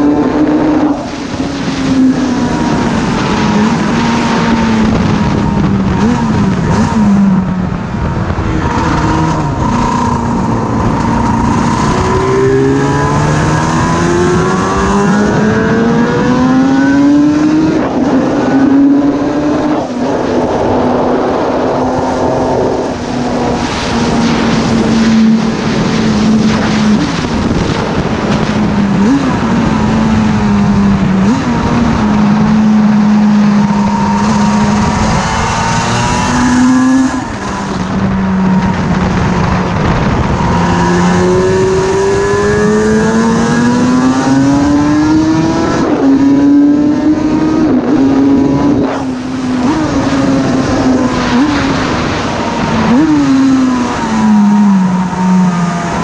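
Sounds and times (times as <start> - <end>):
racing motorcycle engine: 0.0 - 56.0
wind rushing over microphone: 0.0 - 56.0.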